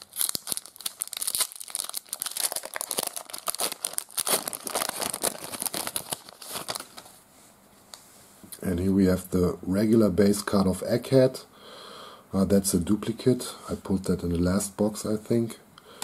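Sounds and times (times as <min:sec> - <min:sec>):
foil wrapper crinkling and tearing: 0:00.0 - 0:07.1.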